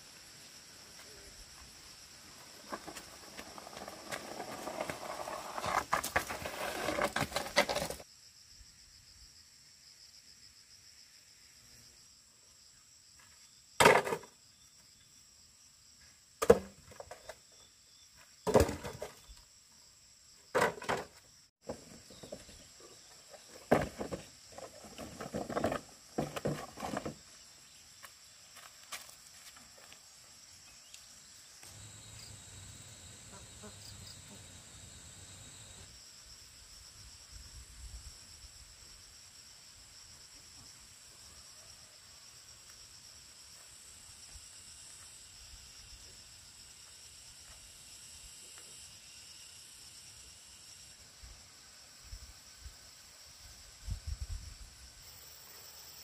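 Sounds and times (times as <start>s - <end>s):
insects droning: 0.0s - 56.0s.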